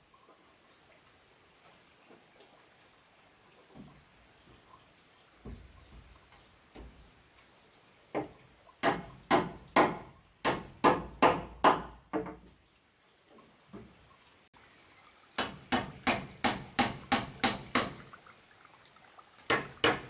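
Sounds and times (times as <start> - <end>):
soft knocks: 5.4 - 7.0
sharp strikes on wood: 8.2 - 12.4, 15.4 - 18.0, 19.5 - 20.0.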